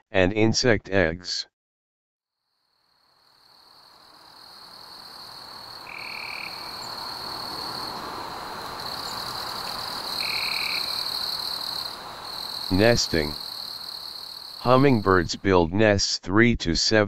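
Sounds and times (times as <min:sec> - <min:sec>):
high-pitched insect trill: 0:02.4 - 0:14.7
short calls: 0:05.8 - 0:15.3.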